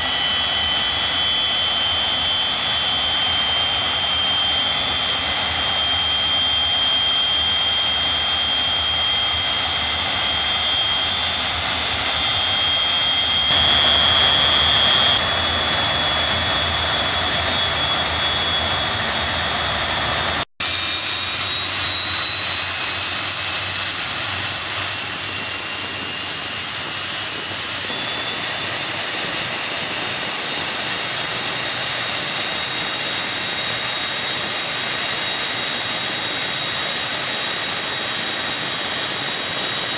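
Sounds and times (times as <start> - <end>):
jet engine roar and whine: 0.0 - 39.9.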